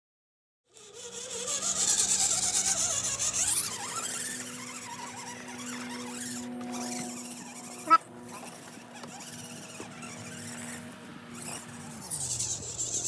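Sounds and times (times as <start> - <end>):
toy car motor and gears whining: 0.7 - 13.0.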